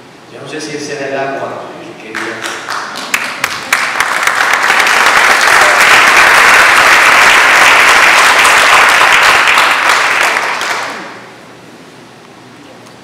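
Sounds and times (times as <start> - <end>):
audience applauding: 2.1 - 11.2.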